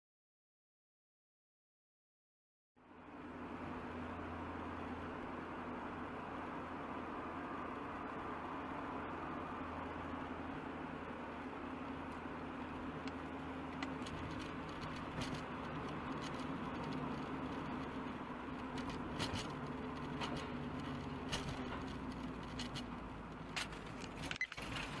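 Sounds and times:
car road and engine noise: 2.8 - 25.0
light clicks and rattles: 13.0 - 25.0.

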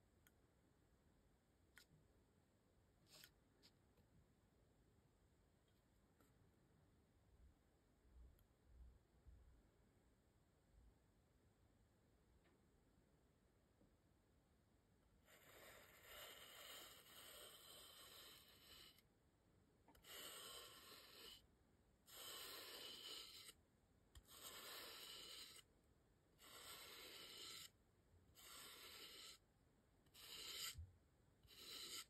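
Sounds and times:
paintbrush scratching on styrofoam: 15.2 - 19.1, 19.9 - 25.7, 26.3 - 29.5, 30.1 - 32.0.

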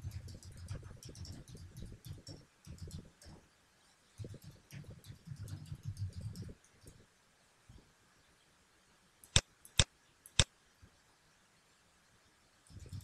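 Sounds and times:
computer mouse clicks: 0.0 - 3.4, 4.2 - 7.0, 9.2 - 10.5, 12.7 - 13.0.

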